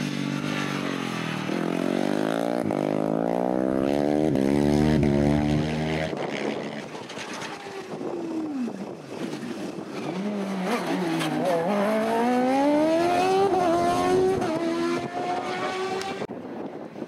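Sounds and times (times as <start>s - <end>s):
race car engine accelerating: 10.5s - 16.3s.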